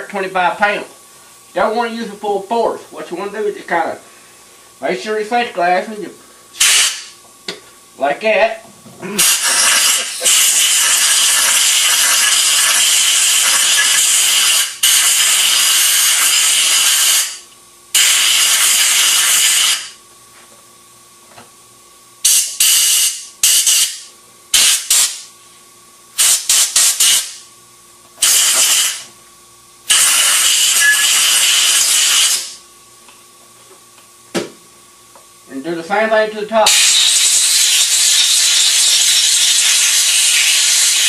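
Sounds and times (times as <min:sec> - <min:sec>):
compressed air hissing from blow gun: 0:06.6 - 0:07.1, 0:09.2 - 0:17.4, 0:18.0 - 0:19.9, 0:26.2 - 0:27.4, 0:28.2 - 0:29.1, 0:29.9 - 0:32.6, 0:36.7 - 0:41.0.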